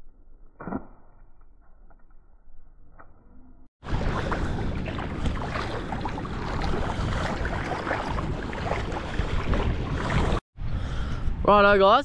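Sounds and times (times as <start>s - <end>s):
water splashing at shoreline: 3.8s - 10.4s
wind buffeting microphone: 3.8s - 12.0s.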